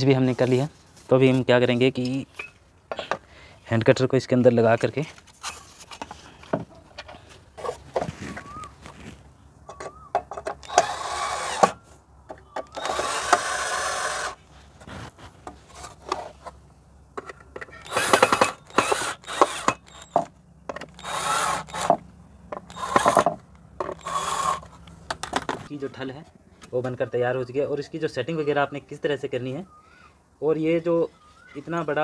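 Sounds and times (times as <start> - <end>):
handling clicks and knocks: 4.6 - 10.9, 15.3 - 21.0, 21.7 - 25.7
drill driving screws: 10.5 - 11.8, 12.6 - 14.4, 17.8 - 22.0, 22.6 - 24.7.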